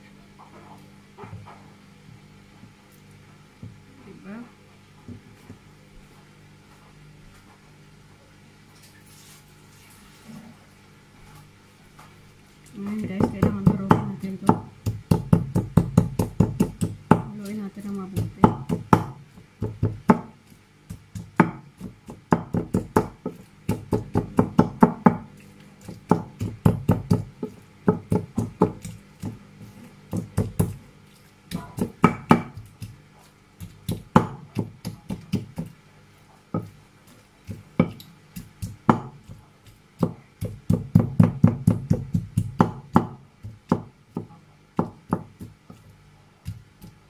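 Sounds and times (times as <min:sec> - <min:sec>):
pestle knocking in bowl: 0:12.9 - 0:29.4, 0:30.1 - 0:30.9, 0:31.5 - 0:33.0, 0:33.6 - 0:35.8, 0:36.5 - 0:36.8, 0:37.4 - 0:47.0.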